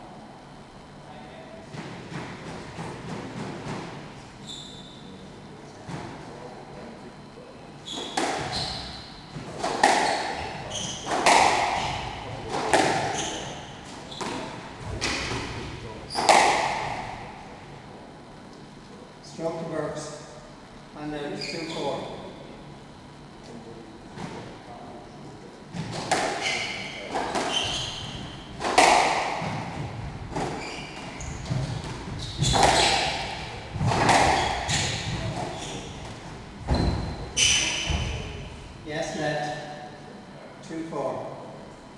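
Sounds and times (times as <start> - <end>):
shoes squeaking on wooden floor: 7.8 - 9.0, 12.8 - 14.5, 26.4 - 28.8, 29.4 - 38.3
squash ball hits echoing: 8.0 - 17.5, 25.7 - 38.6.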